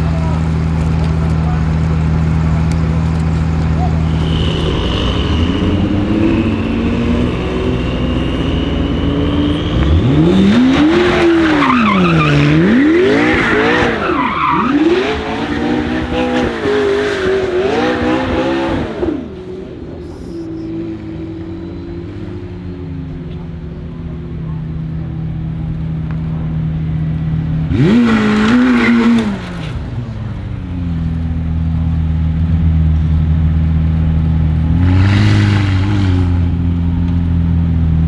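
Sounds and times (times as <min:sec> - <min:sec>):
car engines idling: 0:00.0 - 0:16.7, 0:19.0 - 0:28.0, 0:29.2 - 0:34.8, 0:36.3 - 0:38.0
car engine revving hard: 0:04.1 - 0:19.4, 0:27.7 - 0:29.5, 0:34.7 - 0:36.4.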